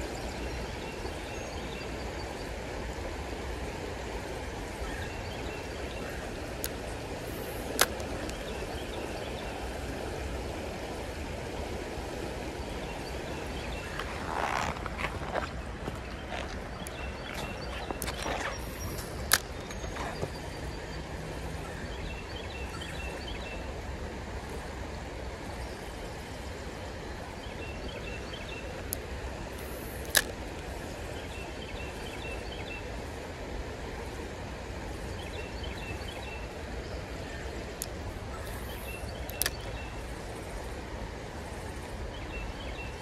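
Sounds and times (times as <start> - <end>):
creek water rushing: 0.0 - 43.0
sharp clicks: 39.2 - 39.7.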